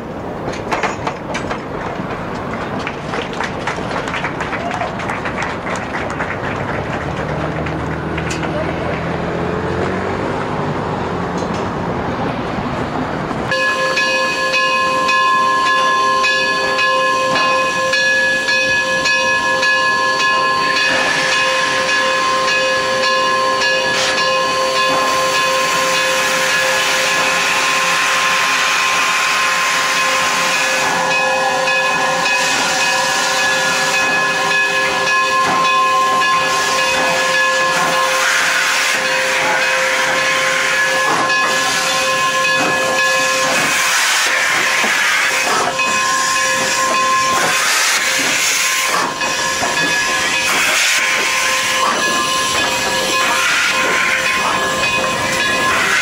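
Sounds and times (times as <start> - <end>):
steam locomotive hissing: 11.7 - 56.0
high whistling whine: 13.4 - 56.0.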